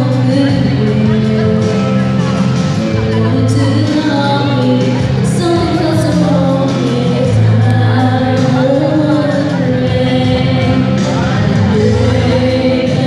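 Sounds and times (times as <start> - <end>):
instrumental backing track: 0.0 - 13.0
girls singing a duet: 3.2 - 13.0.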